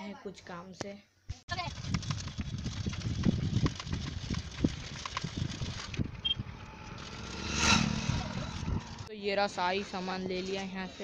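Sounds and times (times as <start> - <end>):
wind buffeting microphone: 1.6 - 9.4.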